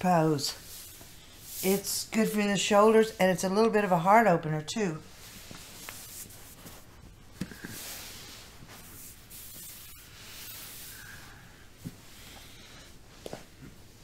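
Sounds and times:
clothing rustling: 5.1s - 11.0s.

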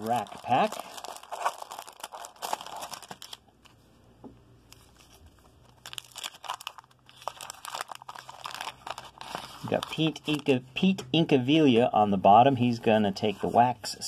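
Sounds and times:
wrapper crinkling and tearing: 0.0s - 3.6s, 4.7s - 10.5s.

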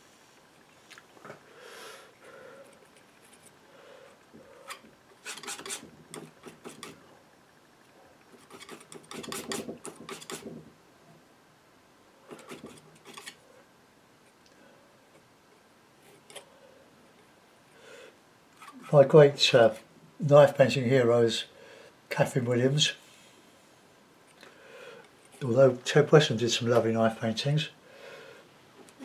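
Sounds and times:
painting knife scraping paint: 4.6s - 7.1s, 8.3s - 10.6s, 12.3s - 13.4s.

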